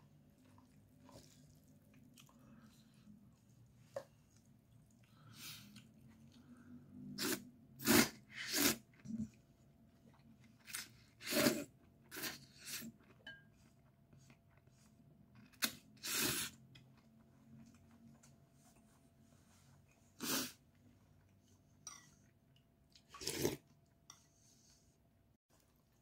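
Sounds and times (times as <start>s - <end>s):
quiet chewing: 0.2s - 6.7s
person slurping noodles: 7.1s - 9.3s, 10.8s - 12.9s, 16.0s - 16.6s, 20.2s - 20.6s, 23.1s - 23.6s.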